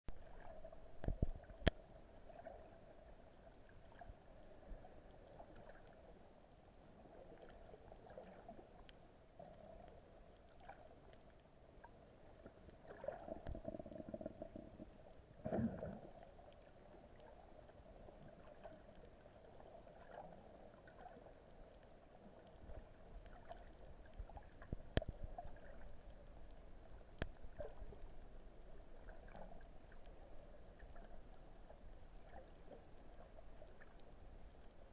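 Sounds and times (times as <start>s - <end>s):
underwater hum: 0.1s - 34.9s
water swishes: 0.1s - 34.9s.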